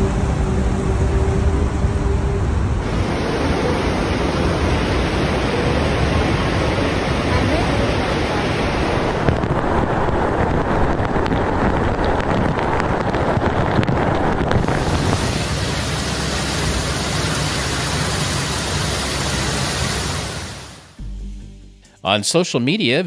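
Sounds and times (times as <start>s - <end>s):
heavy rain: 2.6s - 21.0s
car splashing through floodwater: 2.8s - 21.0s.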